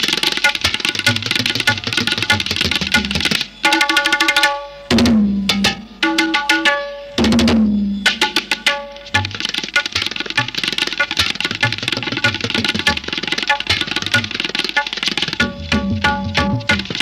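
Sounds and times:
hand drum strokes: 0.0s - 3.5s, 4.9s - 17.0s.

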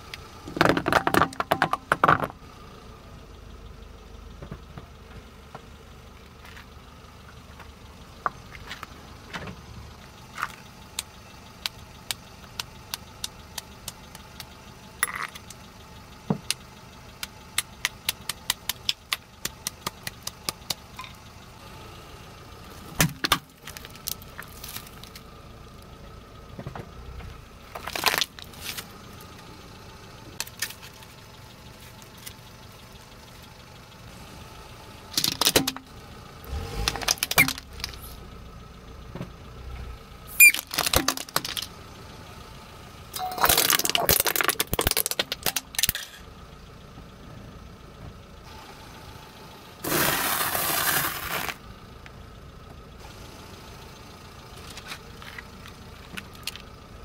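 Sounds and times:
car tyre crushing objects: 0.0s - 2.5s, 17.2s - 21.4s, 22.6s - 25.3s, 26.6s - 29.5s, 30.3s - 33.2s, 35.1s - 38.2s, 40.3s - 41.8s, 43.2s - 46.3s, 49.8s - 51.7s, 54.6s - 56.8s
car engine running: 0.0s - 57.0s
hammer tapping mothballs on asphalt: 0.5s - 2.4s, 10.3s - 15.6s, 17.2s - 21.2s.

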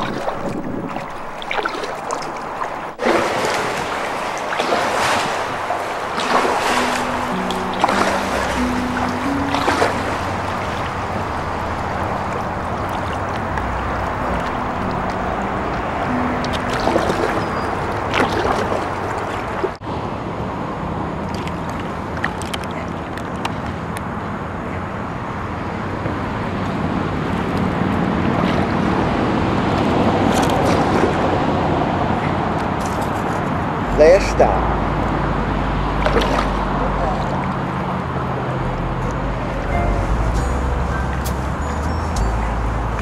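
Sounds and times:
paddles splashing in water: 0.0s - 19.8s, 21.2s - 23.6s, 27.5s - 31.6s, 35.7s - 43.0s
water sloshing against hulls: 0.0s - 19.8s, 21.2s - 23.6s, 34.9s - 43.0s.

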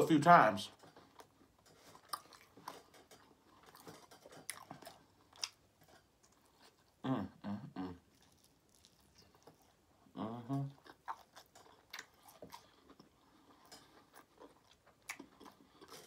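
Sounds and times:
wet chewing and mouth smacks: 1.0s - 5.6s, 8.1s - 9.8s, 10.8s - 16.0s
person humming: 7.0s - 8.0s, 10.1s - 10.8s.

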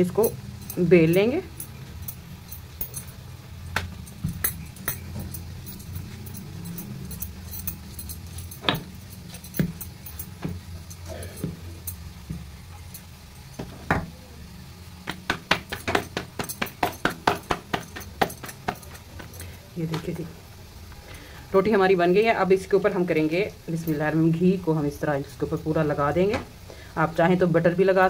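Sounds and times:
steady low hum: 0.0s - 28.0s
rolling pin rolling dough: 15.0s - 20.2s.

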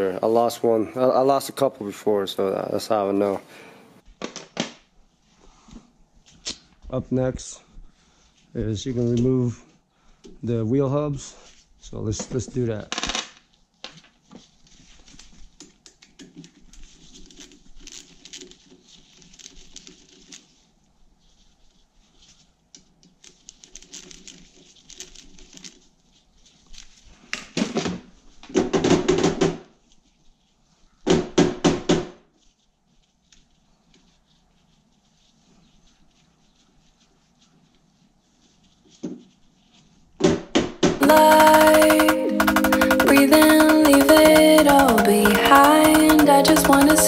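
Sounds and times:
hex key knocking on wheel hub: 41.0s - 47.0s.

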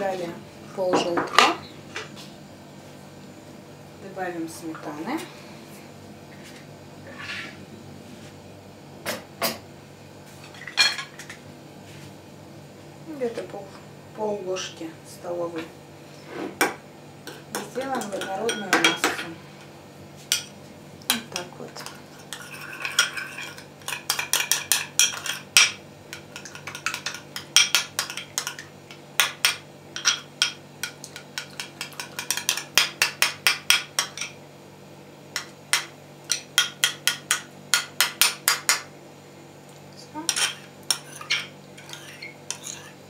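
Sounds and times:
spoon clinking against ceramic bowl: 18.0s - 19.3s.

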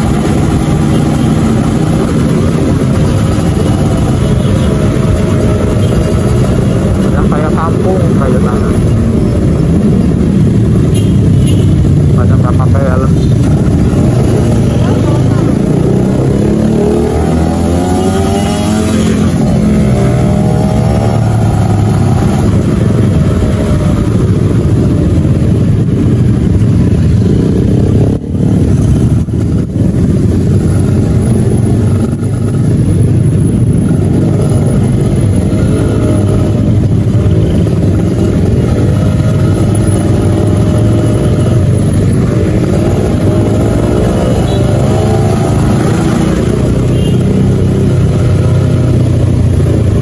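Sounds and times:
motorcycle engine revving: 0.0s - 50.0s.

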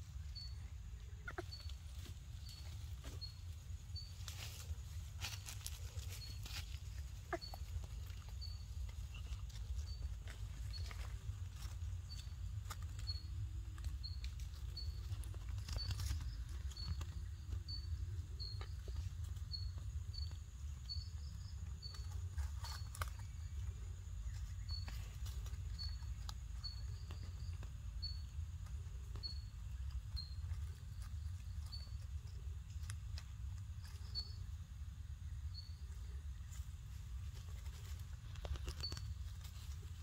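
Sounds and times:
dry leaves crackling: 1.8s - 17.1s.

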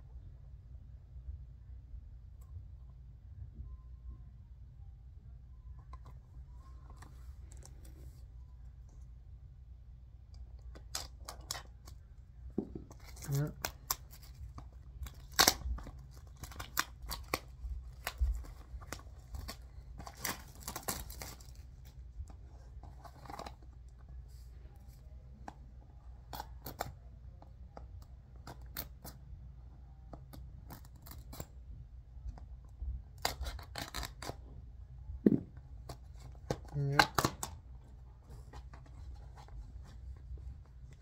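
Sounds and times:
shrink-wrap being torn off: 12.9s - 21.7s, 33.2s - 34.4s.

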